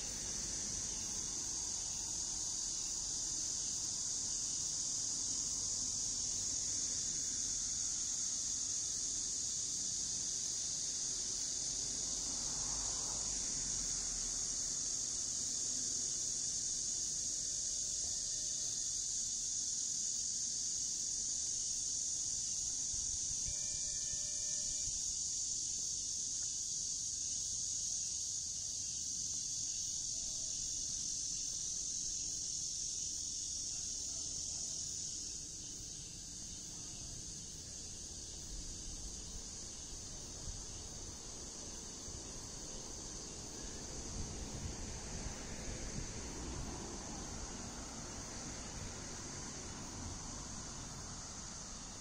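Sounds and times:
insects chorus: 0.0 - 52.0.

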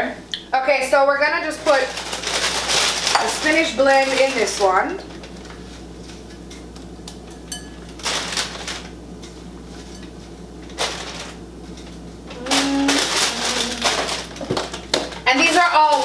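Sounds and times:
steady low hum: 0.0 - 16.0
spinach leaves rustling: 1.5 - 5.8, 12.3 - 16.0.

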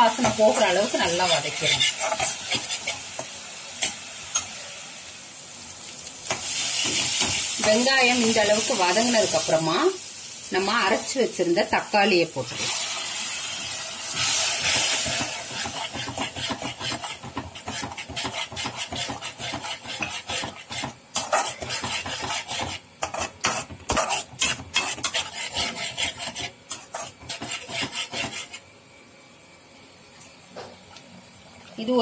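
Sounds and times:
spatula scraping pan: 0.0 - 4.5, 14.2 - 28.6
puree sizzling in hot oil: 0.0 - 29.1.

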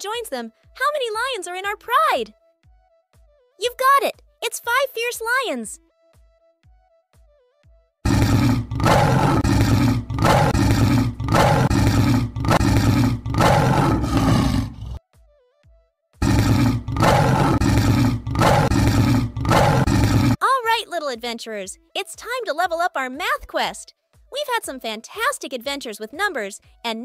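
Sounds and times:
lion roaring: 8.1 - 15.0, 16.2 - 20.4.

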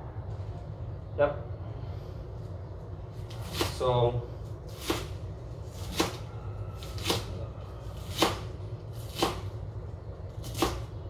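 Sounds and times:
knife chopping cabbage: 3.3 - 4.0, 4.7 - 9.6, 10.4 - 11.0.

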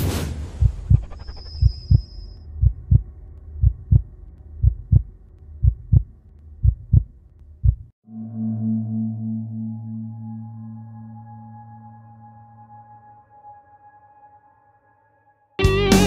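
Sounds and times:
low hum: 0.3 - 15.2
heartbeat thumps: 0.5 - 8.0
thin high tone: 8.1 - 15.5.

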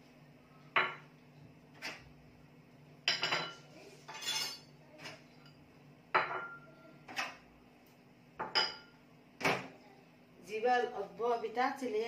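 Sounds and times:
porcelain bowls clinking: 8.4 - 9.0.

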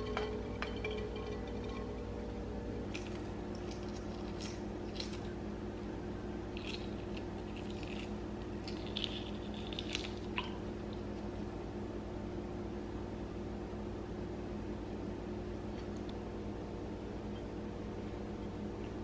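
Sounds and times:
eggshell crackling: 0.0 - 11.3
low hum: 0.0 - 19.0.

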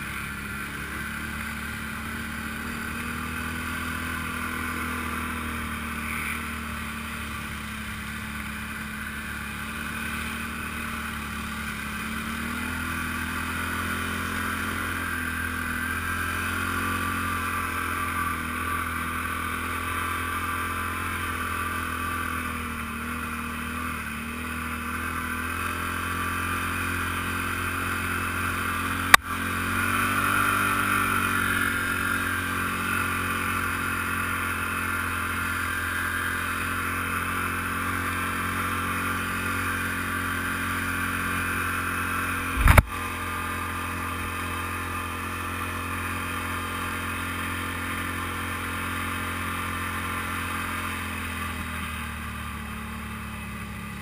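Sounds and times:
atv engine running: 0.0 - 54.0
sharp click: 42.6 - 42.9.

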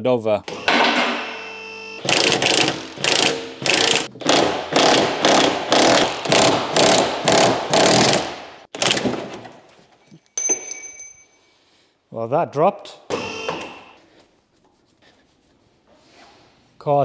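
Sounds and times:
impact wrench hammering: 2.0 - 9.2.

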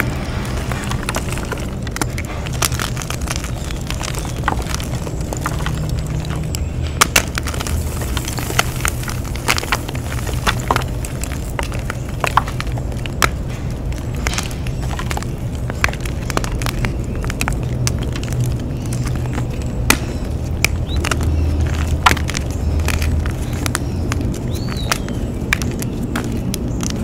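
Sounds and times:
chalk blocks crunching: 0.0 - 27.0.

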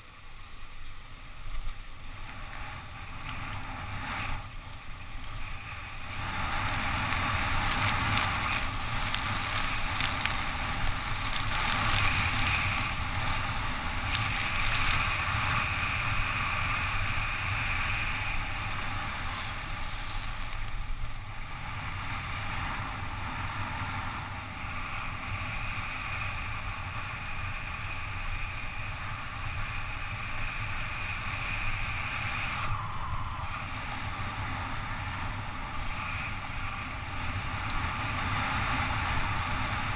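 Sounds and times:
bicycle tyres hissing on wet road: 0.0 - 39.9
wind rushing over camera: 0.0 - 39.9.

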